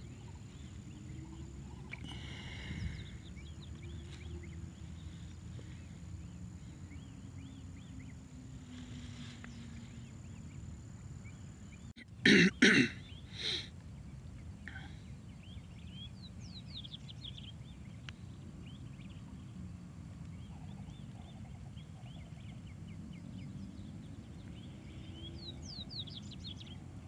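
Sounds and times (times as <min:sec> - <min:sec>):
faint chirping calls: 0:00.0 - 0:27.0
person coughing: 0:12.2 - 0:13.6.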